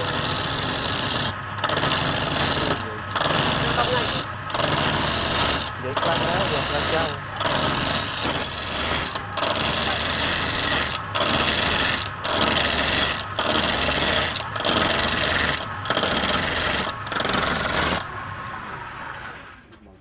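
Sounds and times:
chisel scraping spinning wood: 0.0 - 19.3.

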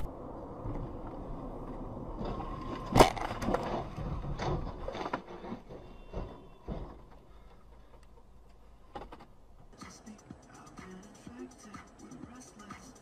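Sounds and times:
road noise: 0.0 - 13.0
car crash bang: 2.2 - 5.1
knocks and clatters of debris: 2.2 - 8.3.

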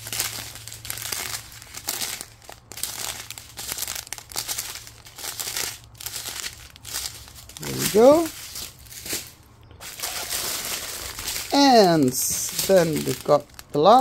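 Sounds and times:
plastic bags crinkling: 0.0 - 14.0.

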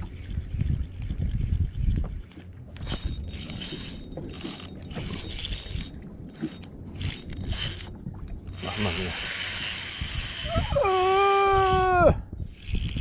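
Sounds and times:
fishing reel drag buzzing: 2.8 - 13.0.

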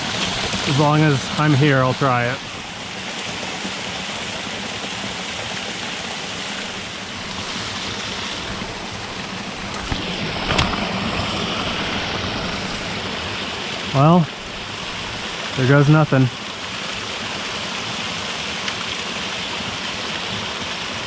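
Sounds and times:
creek waterfall rushing: 0.0 - 21.0.

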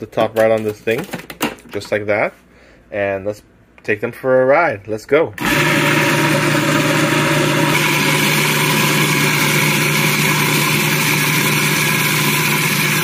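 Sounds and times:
food processor running: 5.4 - 13.0.

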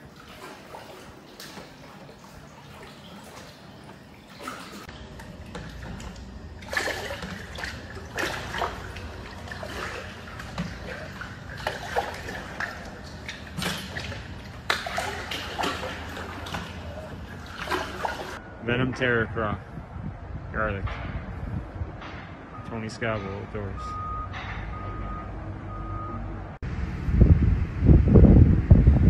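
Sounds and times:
water splashing against boat: 0.0 - 18.4
low steady rumble: 25.0 - 29.0.

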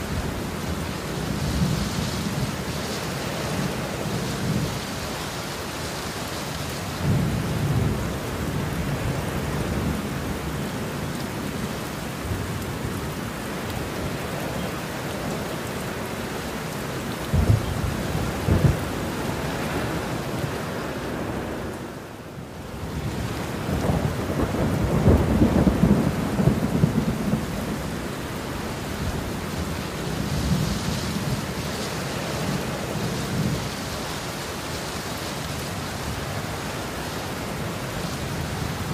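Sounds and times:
heavy rain falling: 0.0 - 38.9
thunder rumbling: 17.2 - 20.6, 23.0 - 31.7.

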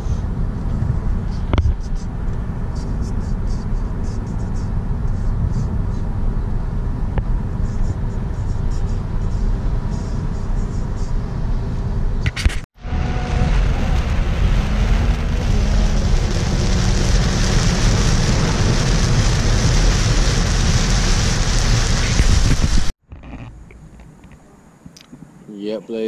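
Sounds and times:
car road noise inside cabin: 0.0 - 23.9
heavy rain on car: 12.8 - 22.9
tyre hiss on wet road: 12.8 - 22.9.

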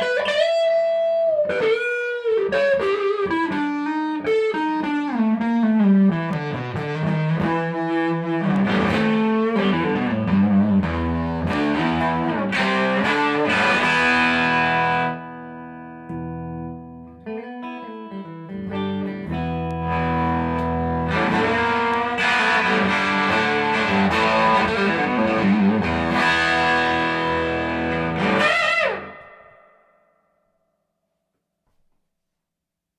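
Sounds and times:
electric guitar through tube amp: 0.0 - 29.9.

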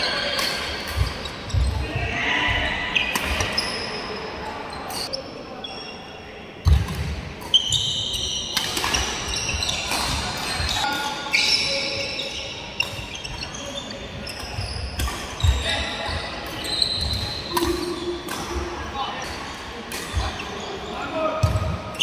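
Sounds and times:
shoes squeaking on court floor: 0.0 - 6.8, 7.4 - 22.0
racket hitting shuttlecock: 8.5 - 10.8.

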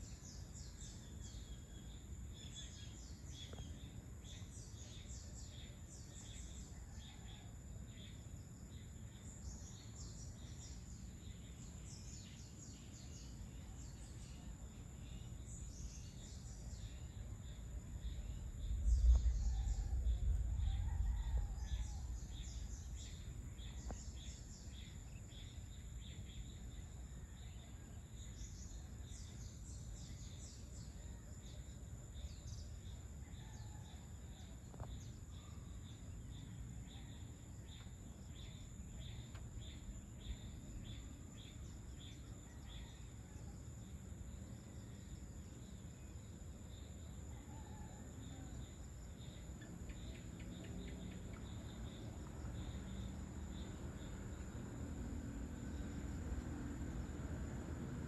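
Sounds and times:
insects droning and chirping: 0.0 - 58.0
low background rumble: 8.6 - 30.6.

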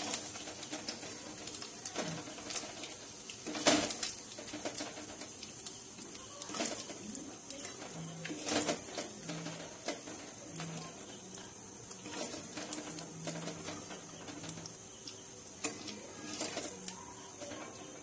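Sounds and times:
faint frying hiss: 0.0 - 18.0.

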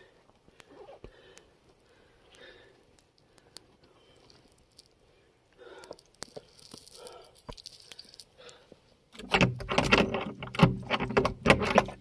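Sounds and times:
soft faint rustling: 3.1 - 9.0.

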